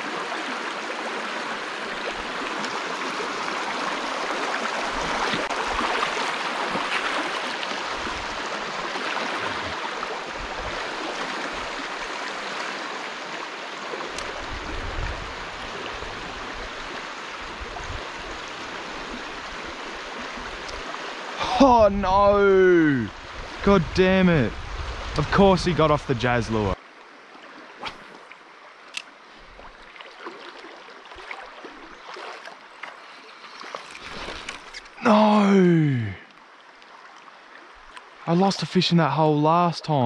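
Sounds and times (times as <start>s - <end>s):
river water rushing over rocks: 0.0s - 17.4s.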